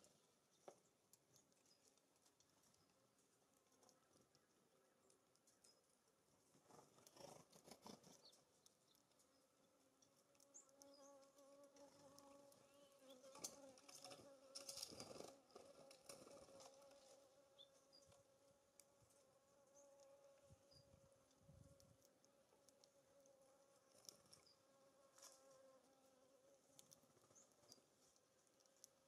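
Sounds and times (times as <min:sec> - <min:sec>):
flying insect buzzing: 0:10.4 - 0:21.9.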